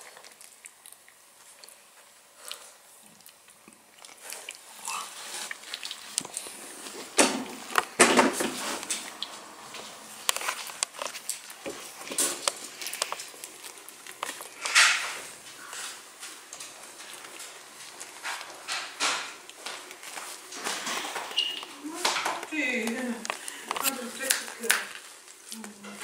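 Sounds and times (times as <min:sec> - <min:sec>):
small clicks and rustles: 0:08.7 - 0:26.0.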